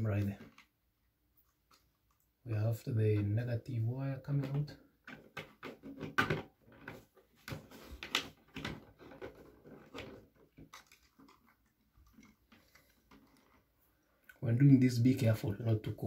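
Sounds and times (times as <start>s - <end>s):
small plastic clicks and rustles: 4.4s - 14.2s.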